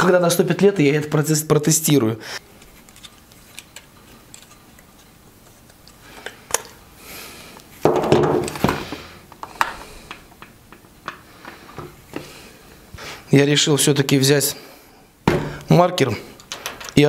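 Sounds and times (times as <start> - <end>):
helmet clattering on wooden table: 7.8 - 8.8.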